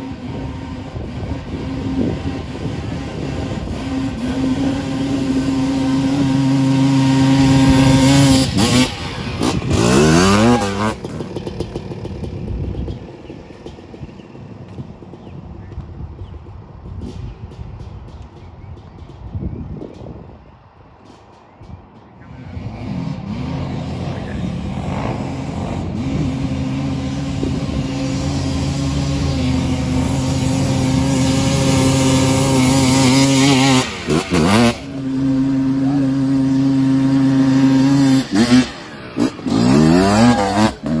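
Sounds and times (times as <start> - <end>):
two-stroke engine revving: 0.0 - 19.2, 22.2 - 41.0.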